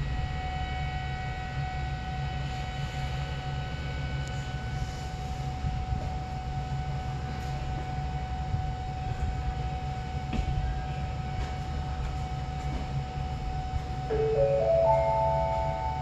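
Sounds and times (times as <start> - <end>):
subway train rumble: 0.0 - 16.0
thin steady hum: 0.0 - 16.0.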